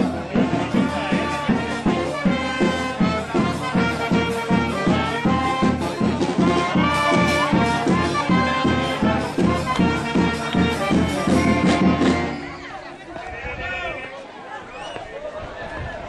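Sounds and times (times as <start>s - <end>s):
steady drum beat: 0.0s - 12.4s.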